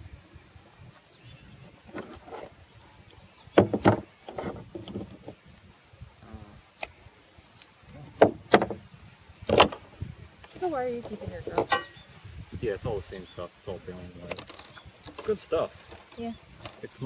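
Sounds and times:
knocks on wooden tabletop: 0:03.6 - 0:05.1.

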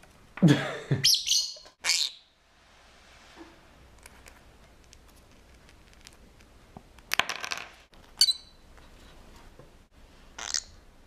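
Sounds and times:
bird chirp: 0:01.0 - 0:02.4, 0:08.2 - 0:08.6.

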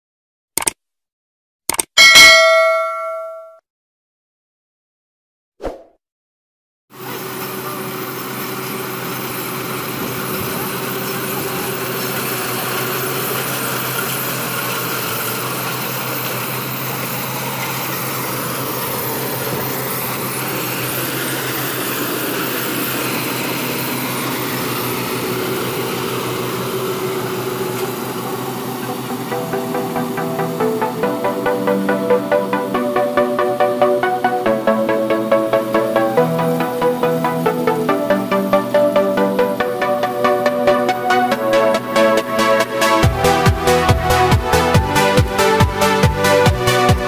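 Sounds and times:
short click: 0:00.6 - 0:00.8, 0:01.7 - 0:01.9
combine harvester running: 0:07.0 - 0:47.0.

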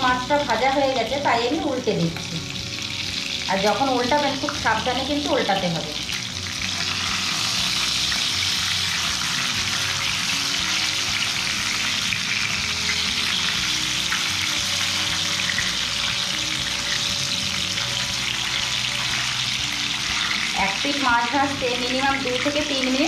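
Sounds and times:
fish sizzling in hot oil: 0:00.0 - 0:23.0.

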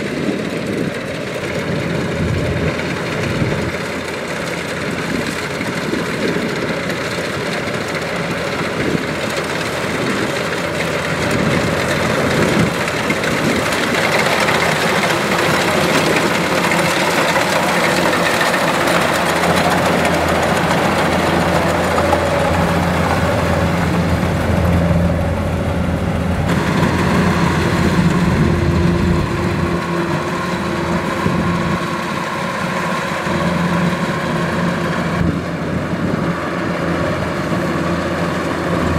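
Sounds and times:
diesel engine under load: 0:00.0 - 0:38.9
harvester threshing machinery: 0:02.5 - 0:38.9.

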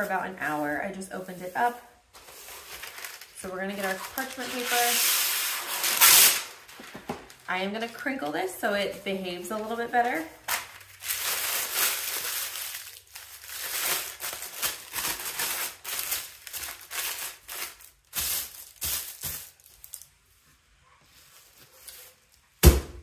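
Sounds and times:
paper crumpling: 0:01.2 - 0:08.1, 0:09.5 - 0:20.1.

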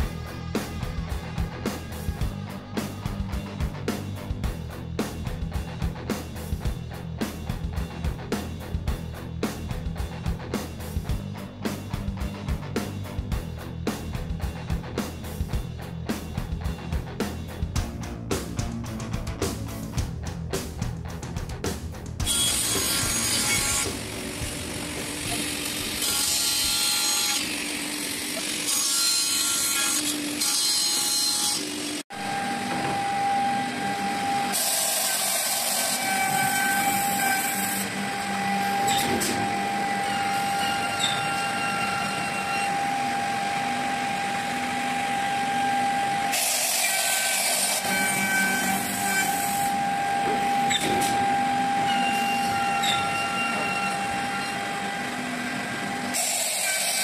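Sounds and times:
high cutting noise: 0:00.0 - 0:05.3, 0:22.2 - 0:57.0
machine whining: 0:22.2 - 0:57.0.

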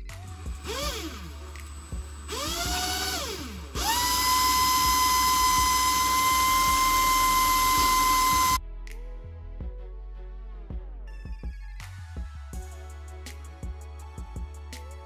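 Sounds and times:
cordless drill motor whining: 0:00.4 - 0:08.6.

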